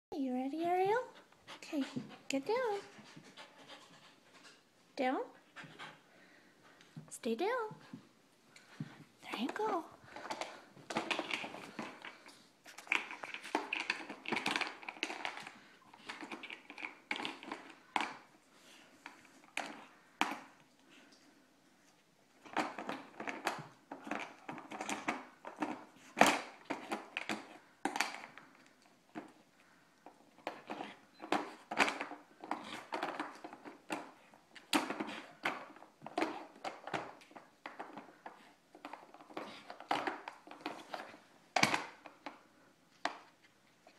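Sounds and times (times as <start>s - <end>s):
plastic puzzle clacking and scraping: 9.3s - 20.6s, 22.4s - 43.9s.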